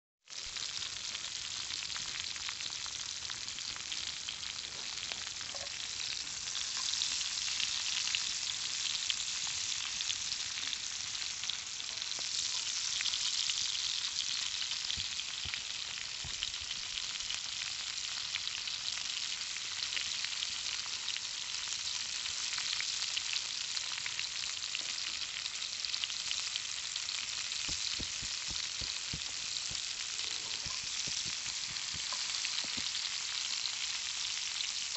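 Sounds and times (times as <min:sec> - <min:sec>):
sausages sizzling in a skillet: 0:00.2 - 0:34.9
small spattering pops: 0:27.6 - 0:33.0.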